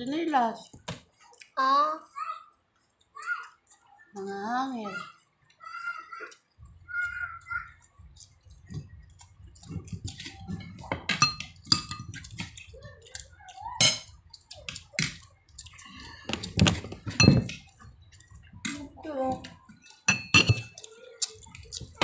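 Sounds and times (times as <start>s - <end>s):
fingers and dishes clinking on plate: 5.0s - 22.0s
wet chewing and lip smacks: 7.7s - 10.6s, 11.4s - 16.6s, 20.7s - 22.0s.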